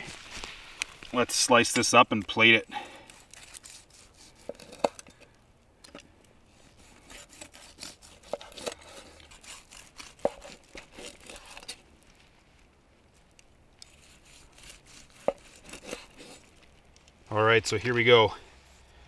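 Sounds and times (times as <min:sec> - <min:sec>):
knife cutting through meat: 0:02.9 - 0:05.0, 0:06.8 - 0:11.8, 0:13.8 - 0:16.5.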